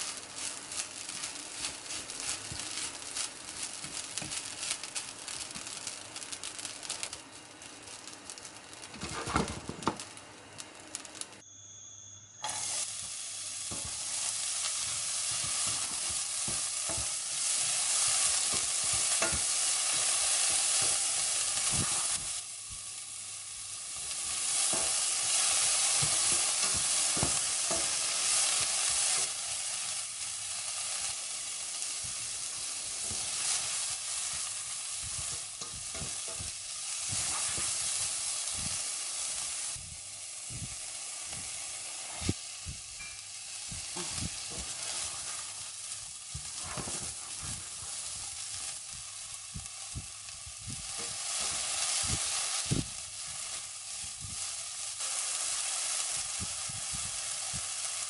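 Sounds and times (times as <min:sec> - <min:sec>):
vegetables sizzling in oil: 0:00.0 - 0:58.0
spatula scraping frying pan: 0:32.4 - 0:38.2, 0:43.8 - 0:48.7.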